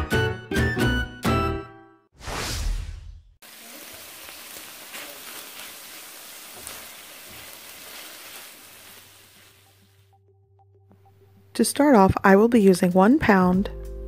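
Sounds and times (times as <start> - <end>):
short whoosh: 2.2 - 3.4
food sizzling in a frying pan: 3.4 - 10.0.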